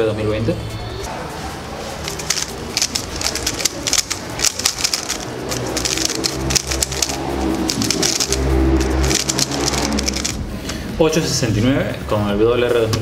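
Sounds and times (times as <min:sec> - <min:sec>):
puzzle cube clicking and clacking: 0:02.0 - 0:10.4.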